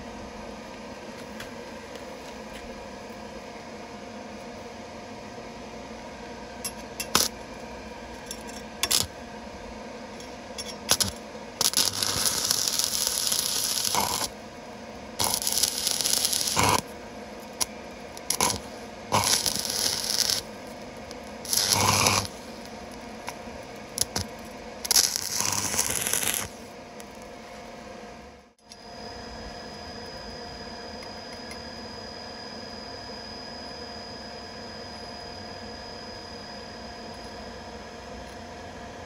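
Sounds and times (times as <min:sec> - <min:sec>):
sharp clicks of arc striking: 0:07.0 - 0:07.3
welding arc crackling: 0:07.0 - 0:07.4, 0:08.8 - 0:09.2, 0:10.8 - 0:14.4, 0:15.2 - 0:27.3.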